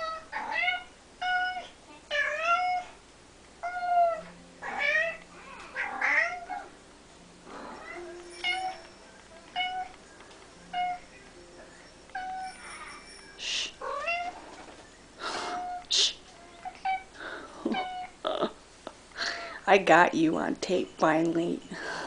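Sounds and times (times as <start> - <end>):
cat meowing: 0.0 - 3.0, 3.6 - 6.7, 10.7 - 11.0, 13.8 - 14.6.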